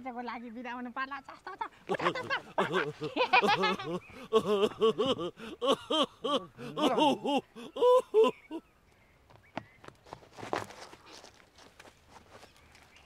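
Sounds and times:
person laughing: 1.9 - 8.6.

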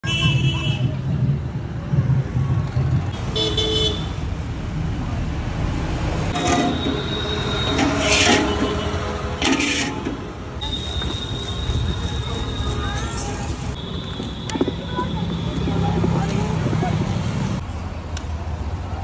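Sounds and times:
traffic engine rumble: 0.0 - 19.0
vehicle horns honking: 3.2 - 4.2, 6.4 - 9.9, 10.6 - 13.0, 13.7 - 15.9.

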